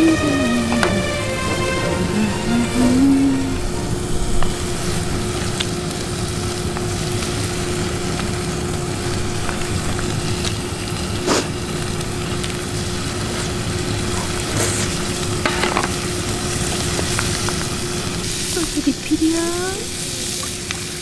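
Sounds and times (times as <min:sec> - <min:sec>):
low hum: 0:00.0 - 0:12.9
meat sizzling in a frying pan: 0:04.5 - 0:21.0.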